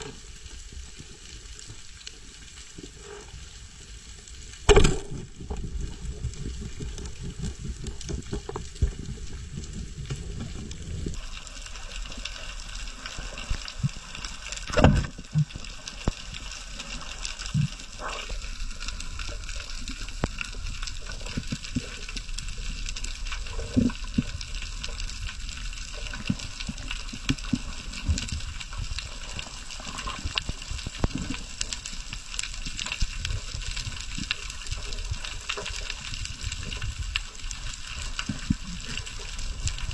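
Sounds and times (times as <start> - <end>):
underwater clicks and knocks: 4.7 - 11.2, 14.6 - 16.2.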